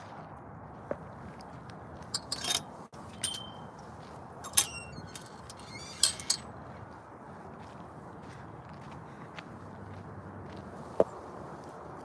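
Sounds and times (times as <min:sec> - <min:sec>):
fence gate latch clanking: 0:02.2 - 0:03.6, 0:04.4 - 0:06.5.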